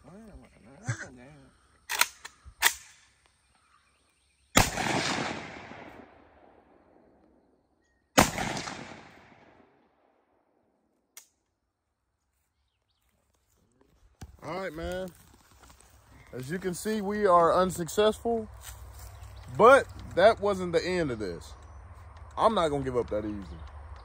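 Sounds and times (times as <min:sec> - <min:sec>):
sharp clicks: 0:01.9 - 0:03.4, 0:21.5 - 0:24.0
rifle shots with echo: 0:04.6 - 0:07.1, 0:08.2 - 0:10.1.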